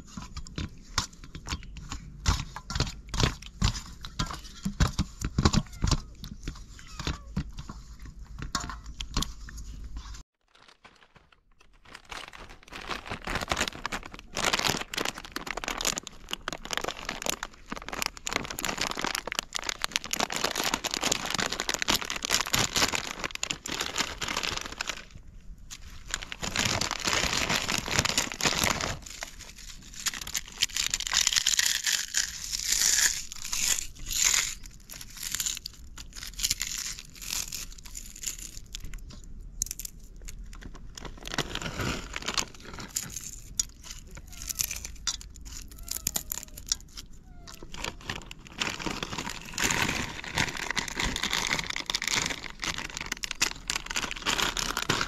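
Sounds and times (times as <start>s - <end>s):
foil chip packet crinkling: 8.6s - 55.0s
chips crunching: 10.4s - 25.2s, 25.8s - 55.0s.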